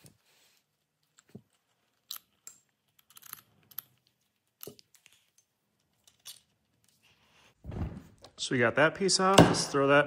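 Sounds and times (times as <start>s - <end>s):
metal parts clicking and tapping: 1.0s - 6.9s.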